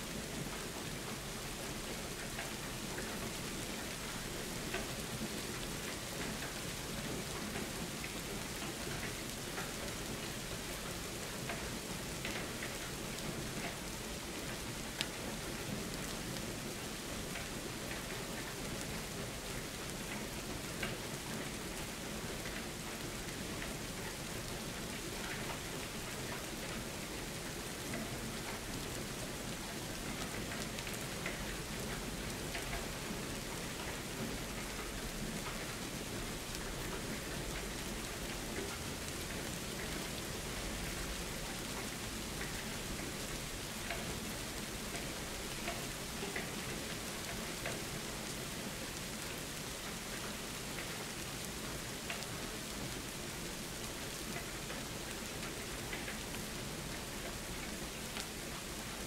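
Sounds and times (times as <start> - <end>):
steady rain hiss: 0.0 - 59.0
raindrops ticking: 22.3 - 59.0.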